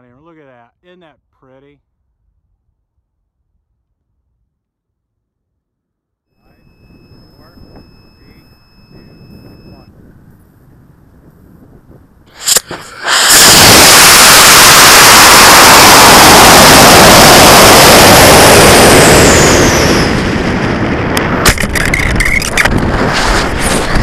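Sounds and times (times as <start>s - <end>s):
rushing wind: 6.5s - 24.0s
sharp pops: 12.3s - 14.6s, 21.1s - 24.0s
rocket motor roaring: 12.3s - 24.0s.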